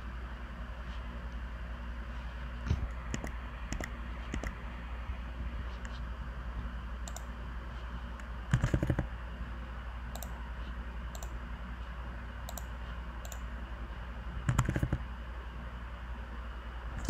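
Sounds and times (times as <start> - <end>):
steady low hum: 0.0 - 17.0
computer mouse clicks: 2.7 - 4.6, 7.0 - 7.3, 8.2 - 9.1, 10.1 - 10.4, 11.1 - 11.4, 12.5 - 13.5, 14.4 - 15.0.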